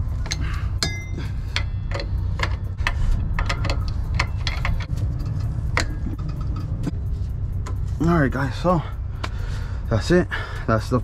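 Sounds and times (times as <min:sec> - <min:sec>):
wrenches clicking on metal: 0:00.0 - 0:06.9
steady low rumble: 0:00.0 - 0:11.0
short metallic ring: 0:00.3 - 0:02.0.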